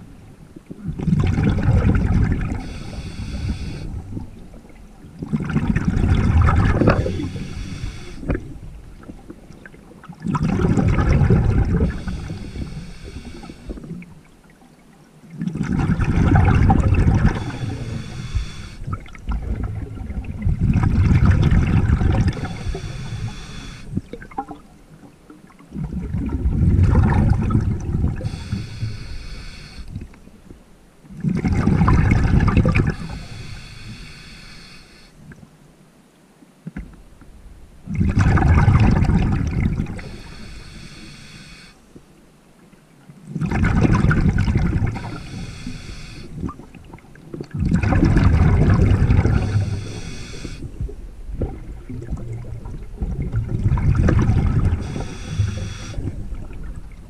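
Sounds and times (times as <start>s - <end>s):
exhaled bubbles underwater: 0.0s - 30.3s, 31.1s - 34.0s, 37.8s - 41.2s, 43.3s - 57.0s
breath drawn in hiss: 2.6s - 4.0s, 7.0s - 8.4s, 11.8s - 13.9s, 17.2s - 18.9s, 22.3s - 24.0s, 28.2s - 30.0s, 32.8s - 35.2s, 40.0s - 41.9s, 44.9s - 46.5s, 49.4s - 50.8s, 54.8s - 56.2s.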